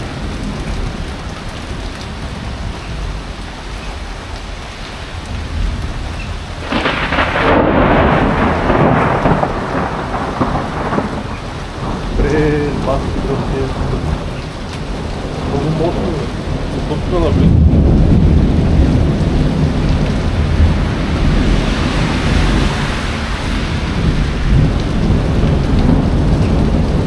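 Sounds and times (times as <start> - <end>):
heavy rain: 0.0 - 27.0
thunderclap: 6.6 - 27.0.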